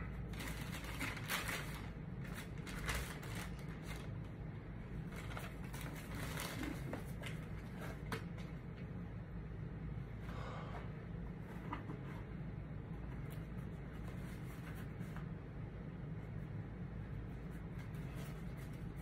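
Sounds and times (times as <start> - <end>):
paper and cardboard rustling: 0.3 - 4.1, 5.1 - 8.2, 13.2 - 15.3, 17.5 - 19.0.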